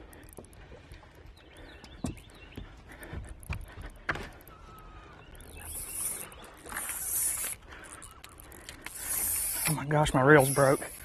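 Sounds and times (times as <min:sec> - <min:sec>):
fishing reel drag buzzing: 0:04.8 - 0:11.0
sharp reel clicks: 0:05.4 - 0:11.0.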